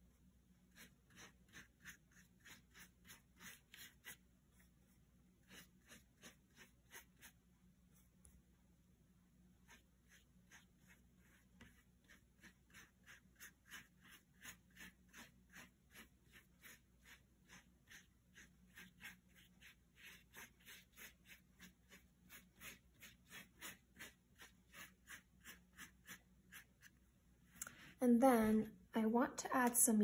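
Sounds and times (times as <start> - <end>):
paintbrush scrubbing on paper: 0.6 - 8.4, 9.5 - 28.0.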